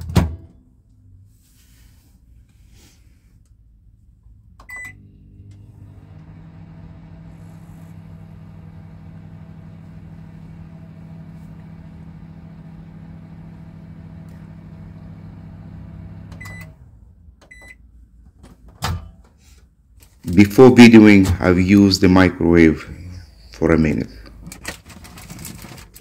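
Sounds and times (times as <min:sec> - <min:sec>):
microwave oven humming: 0:04.5 - 0:17.8.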